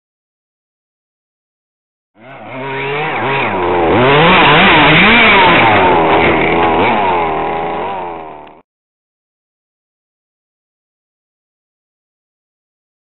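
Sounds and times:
small two-stroke engine revving: 2.2 - 8.6.

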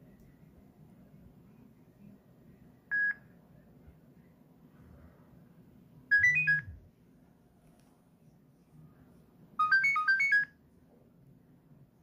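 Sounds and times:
phone beeps: 2.9 - 3.2, 6.1 - 6.8, 9.6 - 10.5.

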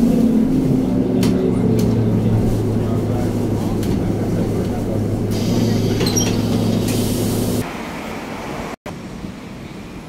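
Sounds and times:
bus engine drone: 0.0 - 10.0
street traffic noise: 0.0 - 10.0.

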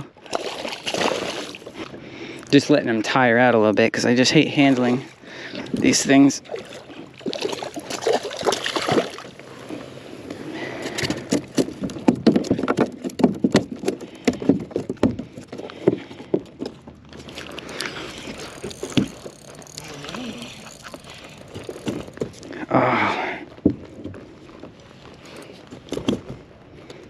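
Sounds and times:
fish splashing at water surface: 6.5 - 9.4
fishing reel clicks and knocks: 17.6 - 22.5.

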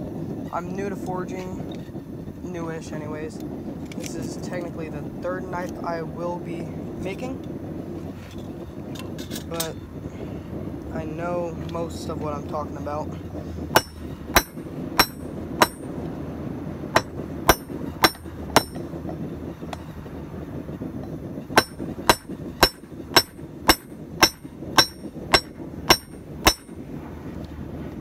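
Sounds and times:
hammer striking spike on anvil: 13.8 - 15.9, 17.0 - 18.8, 21.6 - 26.8.

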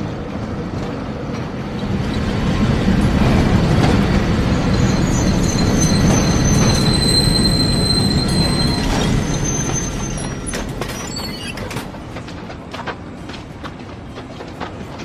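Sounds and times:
tram rumbling: 0.0 - 15.0
steel wheel squeal on rails: 3.7 - 11.9.

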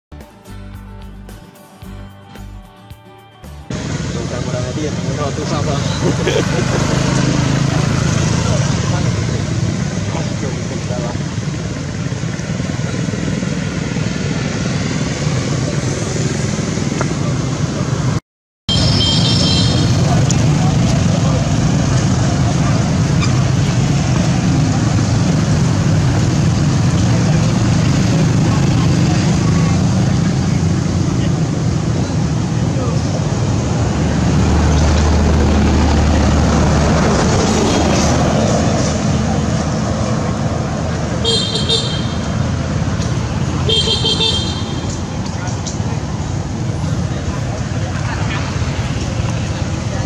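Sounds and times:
outdoor noise: 0.2 - 50.0
vehicle engine humming: 0.2 - 50.0
low outdoor rumble: 19.9 - 41.2.

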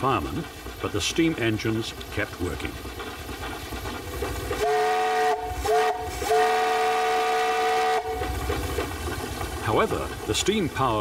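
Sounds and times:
steam whistle blasts: 4.6 - 8.2.

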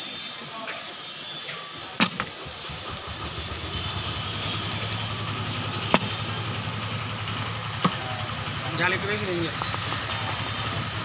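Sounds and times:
low mechanical hum: 2.3 - 8.6.

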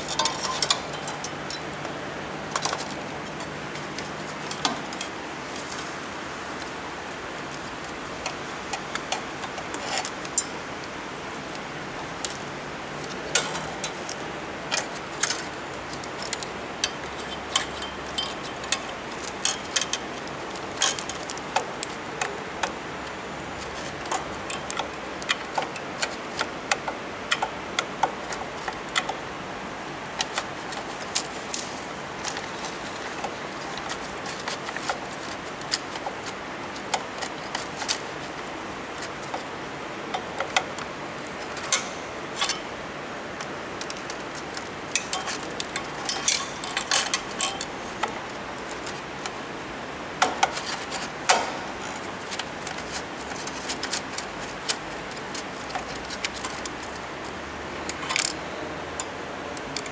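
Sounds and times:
screwdriver clicking on metal: 0.0 - 1.6.

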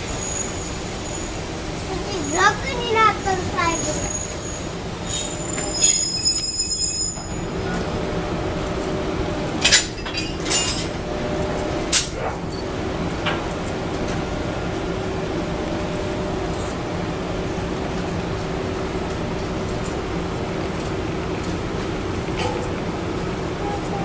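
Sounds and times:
high wheel squeal: 0.0 - 1.5, 2.1 - 7.8
electric locomotive humming: 0.0 - 24.0.

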